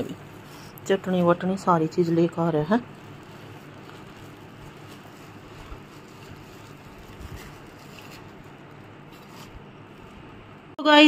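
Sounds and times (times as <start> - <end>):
low hum and hiss: 0.0 - 11.0
plastic bags crinkling: 2.4 - 10.3.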